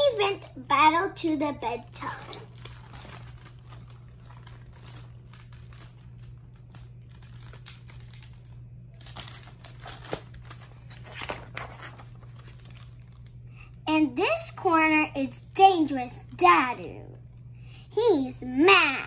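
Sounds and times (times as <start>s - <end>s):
low steady hum: 0.0s - 19.0s
picture book pages rustling: 1.2s - 8.4s, 9.0s - 13.5s.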